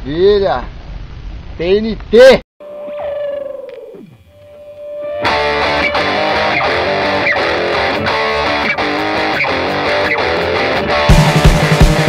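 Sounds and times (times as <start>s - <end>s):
guitar riff with steady beat: 5.0s - 12.0s.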